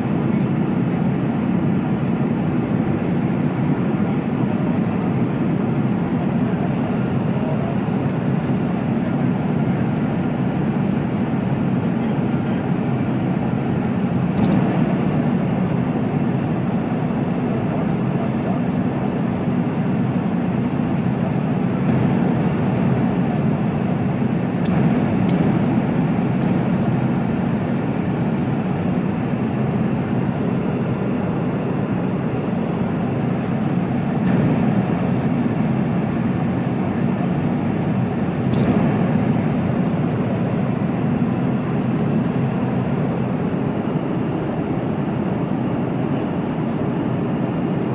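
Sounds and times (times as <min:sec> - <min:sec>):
airliner cabin drone: 0:00.0 - 0:47.9
seatbelt buckle clicks: 0:14.4 - 0:14.6, 0:38.5 - 0:38.8.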